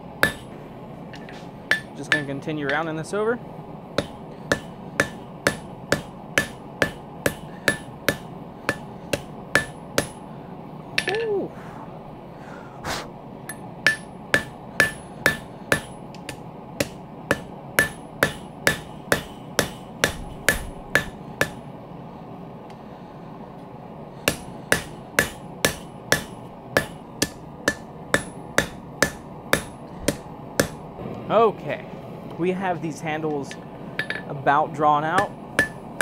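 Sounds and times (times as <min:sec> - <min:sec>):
hammer striking steel on anvil: 0:00.2 - 0:00.6, 0:01.2 - 0:02.9, 0:04.0 - 0:10.3, 0:11.0 - 0:11.4, 0:13.5 - 0:21.7, 0:24.2 - 0:30.8, 0:33.2 - 0:34.4, 0:35.1 - 0:36.0.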